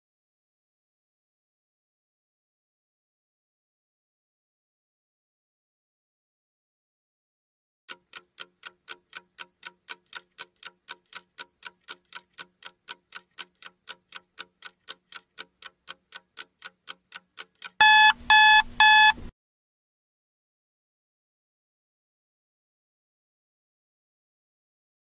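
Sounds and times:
clock ticking: 0:07.9 - 0:19.2
electronic alarm beeps: 0:17.8 - 0:19.2.

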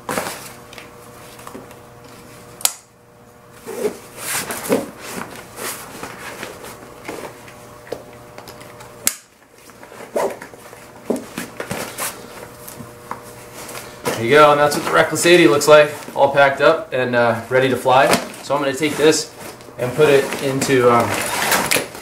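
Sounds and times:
nylon fabric and straps rustling: 0:18.0 - 0:21.9.

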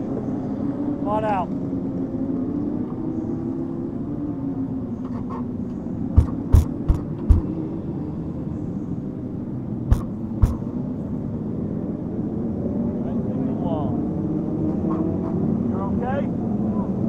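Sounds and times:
sharp knocks: 0:06.1 - 0:07.6, 0:09.9 - 0:10.7
motorcycle engine running: 0:06.2 - 0:07.7.

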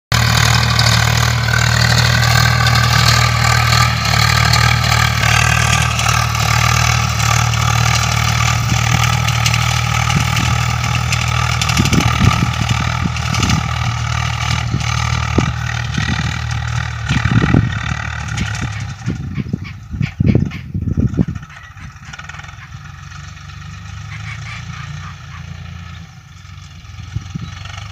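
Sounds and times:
tractor diesel engine running: 0:00.1 - 0:27.9.

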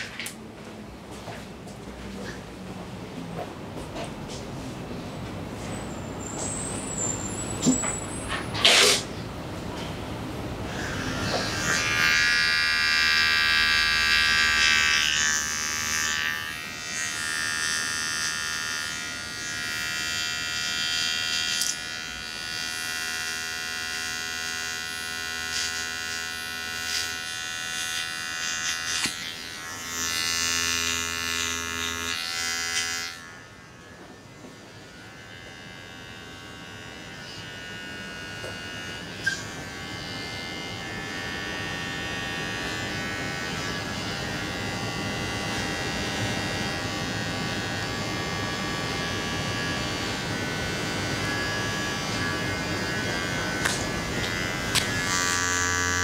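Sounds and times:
electric hair clippers buzzing: 0:00.0 - 0:00.4, 0:10.5 - 0:56.0.

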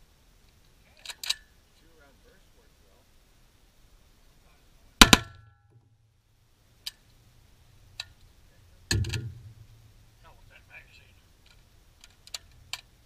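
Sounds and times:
rifle shots: 0:05.0 - 0:05.4
clanks and knocks: 0:08.9 - 0:09.6.

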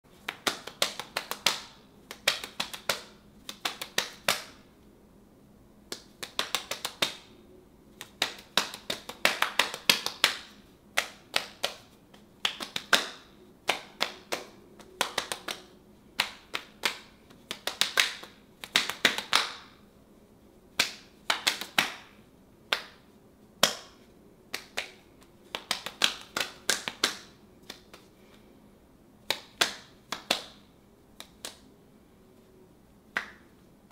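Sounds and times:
hands slapping bare forearms: 0:00.1 - 0:04.7, 0:05.9 - 0:19.8, 0:20.7 - 0:28.5, 0:29.2 - 0:31.7, 0:33.1 - 0:33.9.

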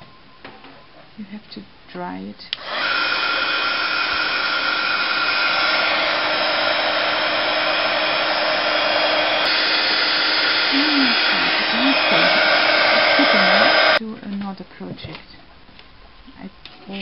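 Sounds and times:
heat tool blowing with whine: 0:02.6 - 0:14.0.

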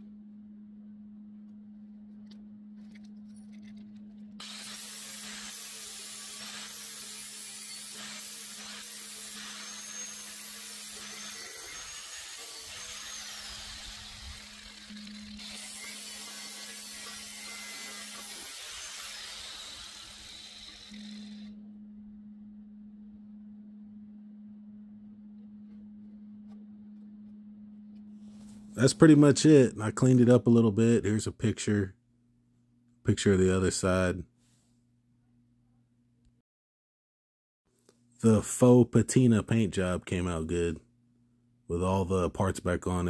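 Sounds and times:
steady low hum: 0:00.0 - 0:11.8, 0:12.4 - 0:36.3
angle grinder grinding steel: 0:04.4 - 0:21.5.

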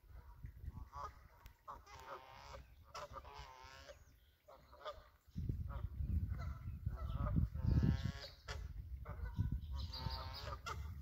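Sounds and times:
geese honking: 0:00.1 - 0:11.0
low rumble of wind or surf: 0:05.1 - 0:11.0.

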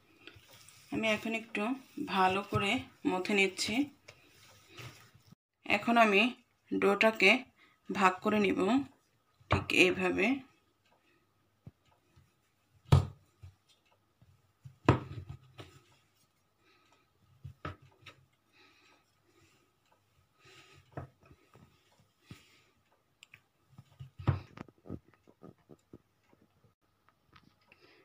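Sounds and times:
soft taps and rustles: 0:00.1 - 0:05.4, 0:11.6 - 0:16.4, 0:20.0 - 0:27.8.

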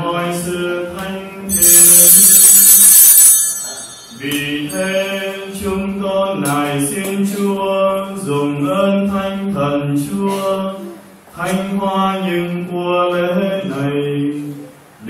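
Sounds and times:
sung liturgical chant: 0:00.0 - 0:01.8, 0:03.6 - 0:14.8
bright metallic ringing: 0:01.5 - 0:05.6.

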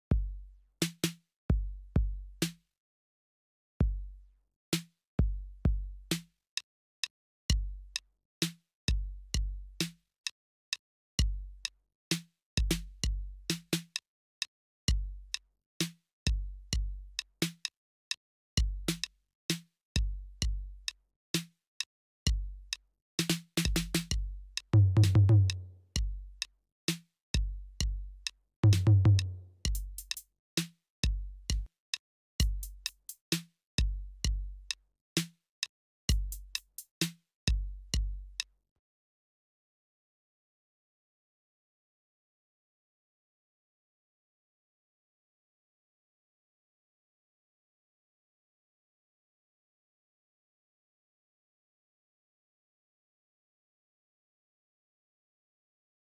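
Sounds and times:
hi-hat ticks: 0:29.7 - 0:30.3, 0:32.4 - 0:33.3, 0:36.1 - 0:36.9.

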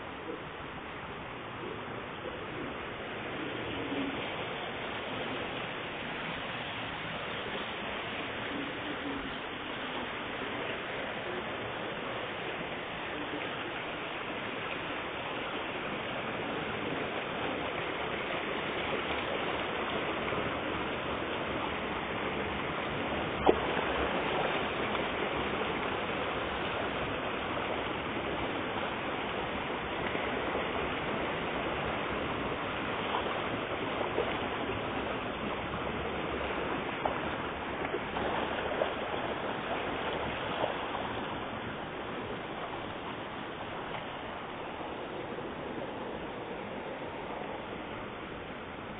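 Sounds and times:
fish splashing in water: 0:12.4 - 0:43.2.

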